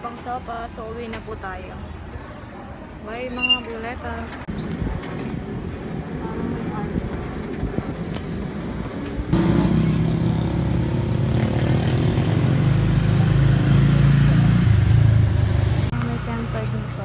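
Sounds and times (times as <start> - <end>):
motorcycle engine running: 9.4 - 17.0.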